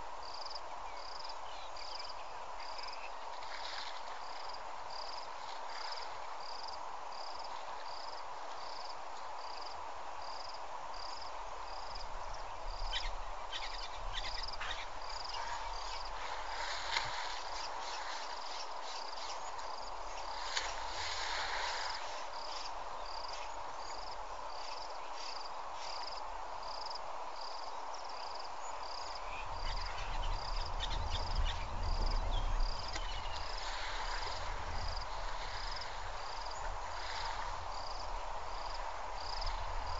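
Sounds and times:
insect chirping: 0:00.2 - 0:39.9
outdoor hiss: 0:04.1 - 0:27.6, 0:32.6 - 0:39.9.

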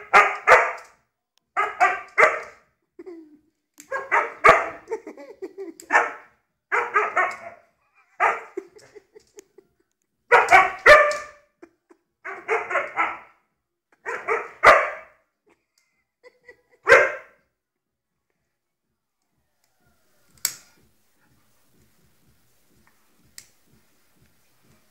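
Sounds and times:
dog barking: 0:00.0 - 0:01.0, 0:01.6 - 0:02.7, 0:03.9 - 0:04.9, 0:05.9 - 0:08.6, 0:10.3 - 0:11.5, 0:12.2 - 0:13.4, 0:14.0 - 0:15.2, 0:16.8 - 0:17.4.

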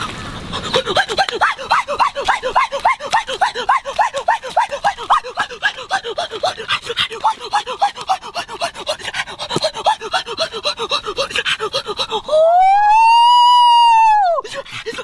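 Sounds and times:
man panting: 0:00.4 - 0:12.5, 0:14.4 - 0:15.0
man's drawn-out ooh: 0:12.2 - 0:14.5.

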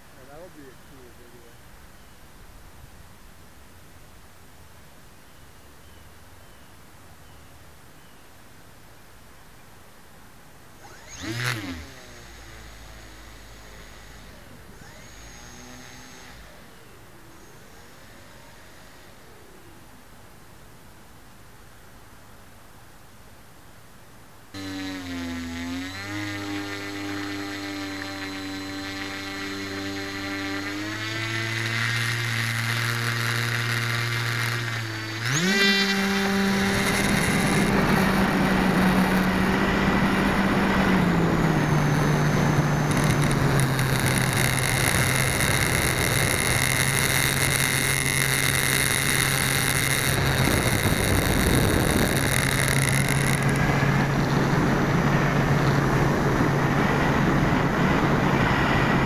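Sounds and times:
model plane electric motor and propeller: 0:00.0 - 0:01.6, 0:10.7 - 0:20.5, 0:24.5 - 0:59.0.

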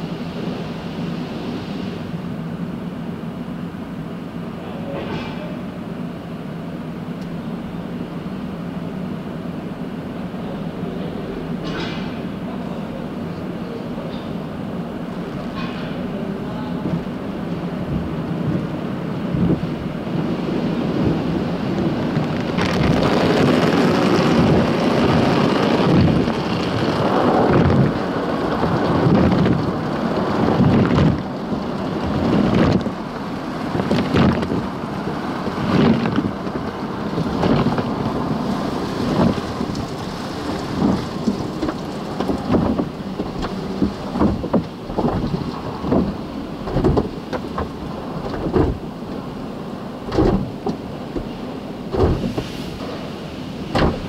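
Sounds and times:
car wash brushes and water spray: 0:00.0 - 0:54.0
brushes slapping car body: 0:50.1 - 0:52.9.

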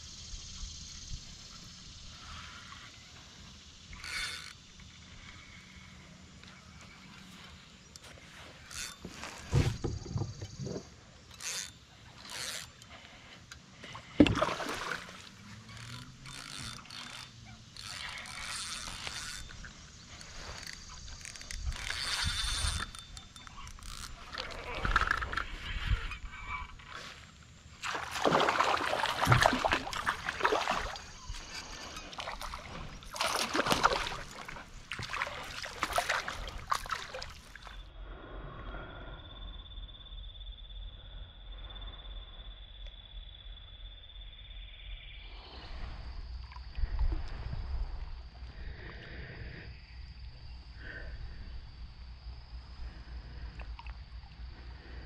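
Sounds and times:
fish thrashing and splashing: 0:14.0 - 0:25.6, 0:27.8 - 0:37.8
loud splash: 0:14.3 - 0:15.2, 0:27.8 - 0:31.0.

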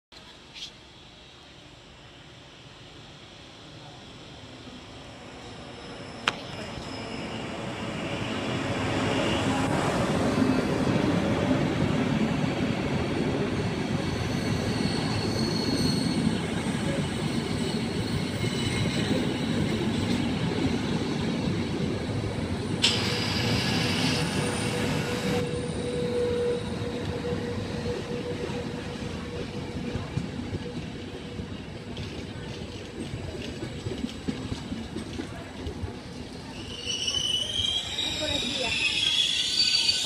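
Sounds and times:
train wheels rumbling: 0:03.8 - 0:40.0
wheels and brakes squealing: 0:05.0 - 0:09.8, 0:13.6 - 0:21.5, 0:22.3 - 0:31.6, 0:36.0 - 0:40.0.

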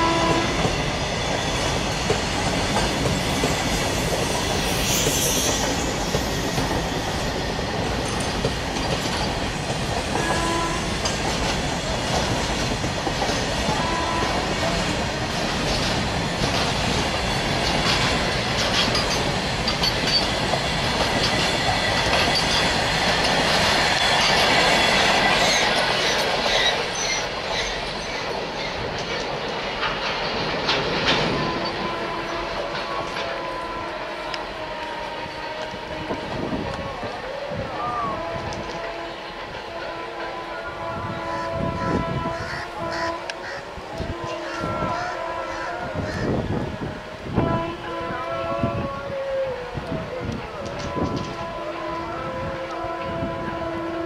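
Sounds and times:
high wheel squeals: 0:00.0 - 0:08.4, 0:18.6 - 0:28.8
freight train rolling past: 0:00.0 - 0:54.0
wheels clicking over rail joints: 0:06.1 - 0:24.7, 0:25.5 - 0:33.6.

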